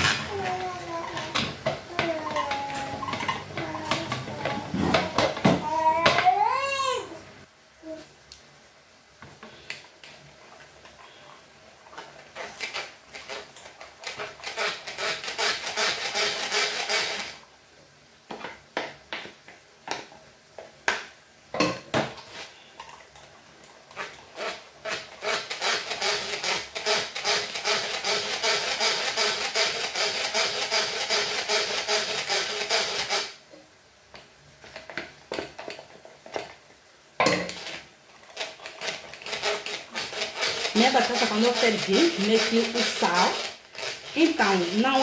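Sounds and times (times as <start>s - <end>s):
food mill blade scraping and clicking: 0.0s - 5.5s, 12.0s - 17.4s, 23.9s - 33.4s, 37.4s - 45.0s.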